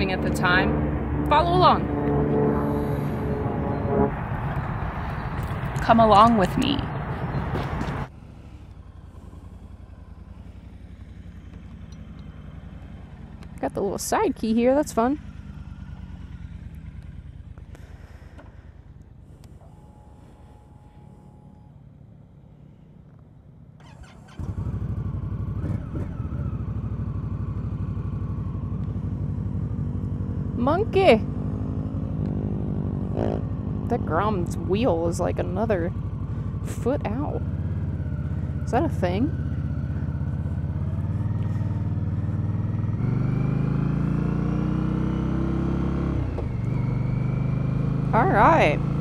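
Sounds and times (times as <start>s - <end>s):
motorcycle engine idling: 4.6s - 32.2s, 32.9s - 43.5s.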